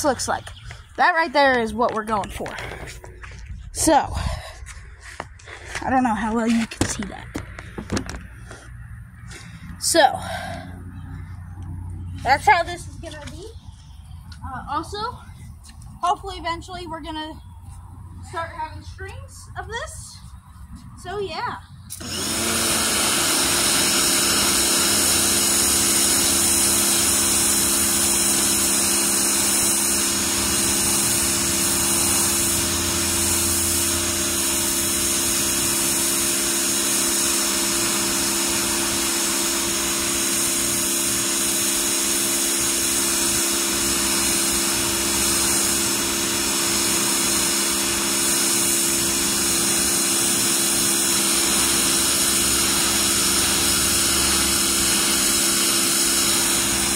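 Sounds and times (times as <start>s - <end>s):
pressure washer motor hum: 21.9s - 56.9s
water jet hissing onto concrete: 23.2s - 56.9s.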